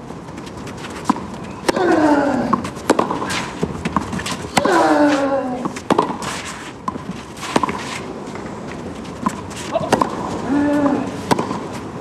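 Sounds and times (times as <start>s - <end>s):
tennis ball struck by rackets: 1.0s - 8.5s, 9.2s - 11.7s
player grunting: 1.7s - 2.5s, 4.5s - 5.7s, 9.7s - 11.2s.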